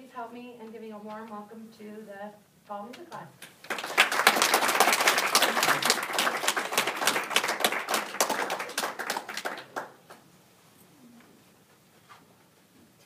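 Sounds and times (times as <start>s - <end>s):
small audience clapping: 3.4s - 10.3s.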